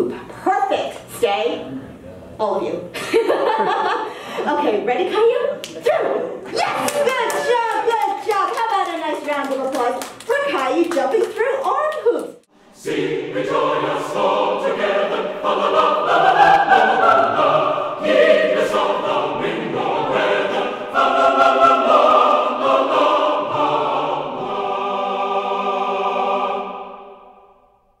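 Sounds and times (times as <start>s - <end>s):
choir singing held chords: 12.5s - 28.0s.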